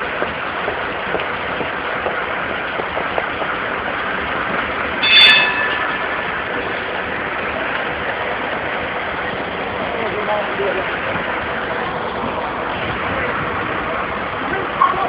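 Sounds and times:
tram on street tracks: 0.0s - 15.0s
high metallic squeal: 5.0s - 6.8s.

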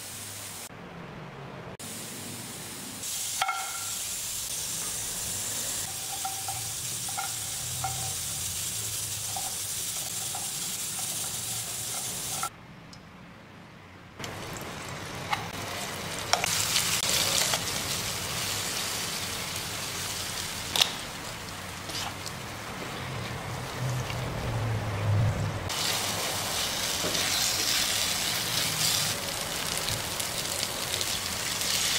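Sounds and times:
spices hissing in pan: 1.8s - 12.5s, 14.3s - 22.7s, 25.7s - 31.9s
spice paste sizzling in oil: 3.0s - 12.5s, 14.3s - 22.7s, 25.7s - 31.9s.

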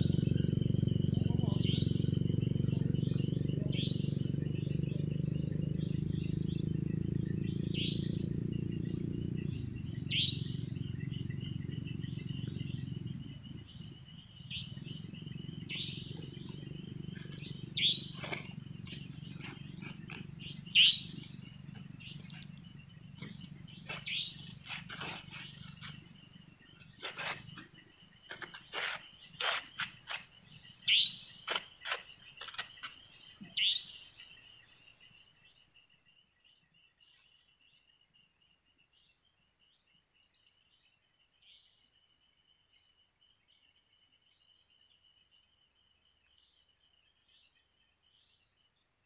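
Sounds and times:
insect trill: 0.0s - 49.0s
chirping animal calls: 7.6s - 33.8s.

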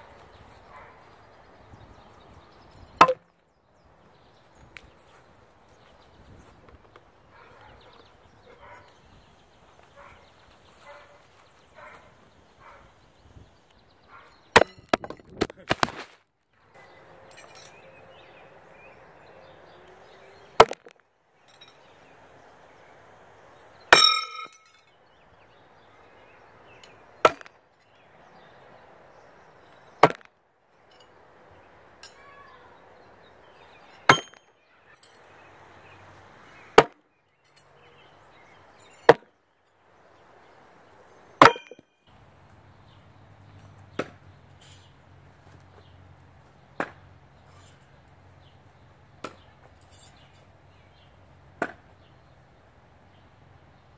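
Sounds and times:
knives thudding into wooden target: 3.0s - 3.2s, 14.6s - 16.2s, 34.1s - 34.4s, 41.4s - 41.8s
knife hitting metal clang: 23.9s - 24.8s, 34.1s - 34.5s, 41.4s - 41.8s.

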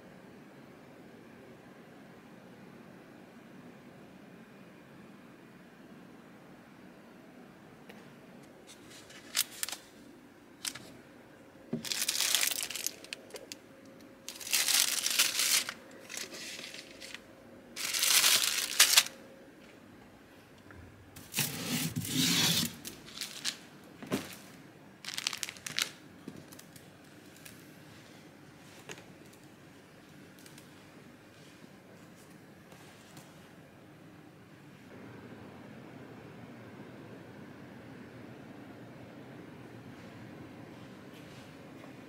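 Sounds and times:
crinkly rustling by hand: 8.6s - 10.0s, 10.6s - 11.0s, 11.8s - 19.2s, 21.3s - 29.5s.

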